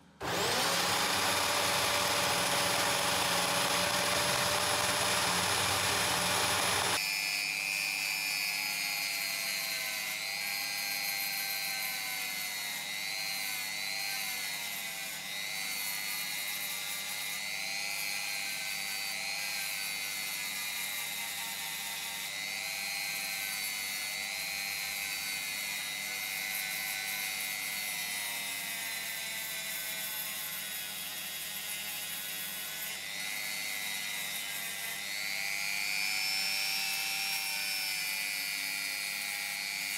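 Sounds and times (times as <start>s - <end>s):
belt sander running: 0.2s - 7.0s
rotary tool grinding wood: 0.2s - 7.1s, 8.6s - 39.9s.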